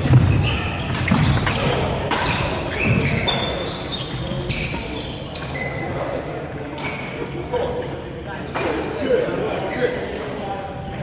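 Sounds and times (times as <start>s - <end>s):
shoes squeaking on wooden floor: 0.0s - 5.9s.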